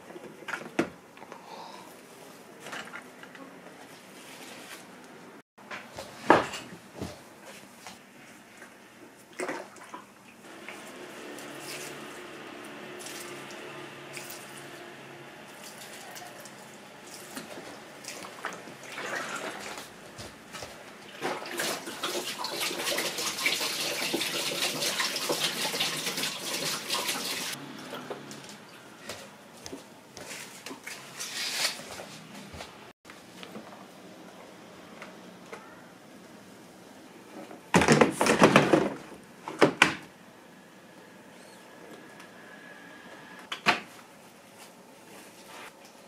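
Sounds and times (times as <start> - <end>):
water splashing into sink: 17.1 - 19.9, 21.1 - 27.6.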